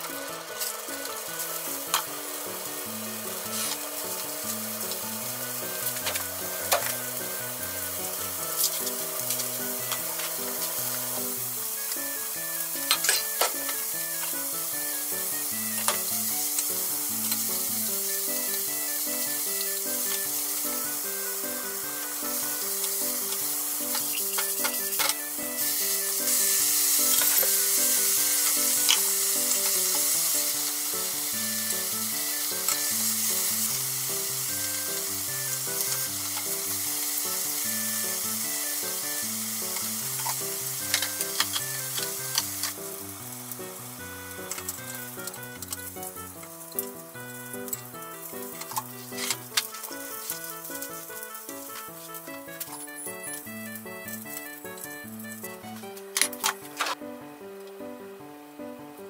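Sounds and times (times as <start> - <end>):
vegetables sizzling in a frying pan: 0.0 - 57.1
soft background music: 0.0 - 59.0
chopsticks clicking against pan: 39.7 - 42.8.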